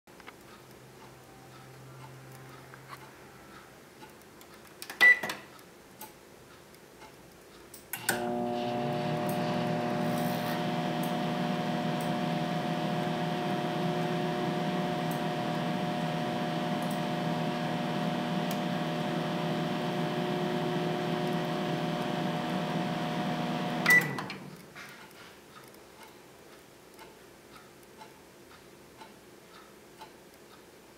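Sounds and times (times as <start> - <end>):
faint regular ticking: 0.1 - 4.9, 5.5 - 7.9, 24.6 - 30.9
microwave beep: 5.0 - 5.3, 8.1 - 24.4
microwave oven humming: 8.0 - 24.5.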